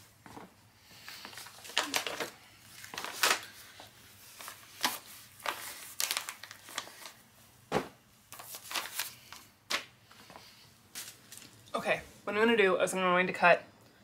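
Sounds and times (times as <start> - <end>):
tissue paper rustling: 1.3 - 7.2, 8.3 - 9.4.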